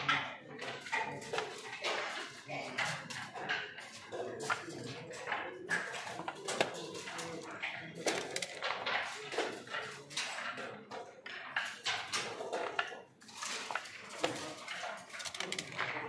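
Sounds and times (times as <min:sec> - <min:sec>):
game pieces clicking and knocking: 0:00.1 - 0:16.0
dice clattering down plastic tower: 0:13.4 - 0:15.9.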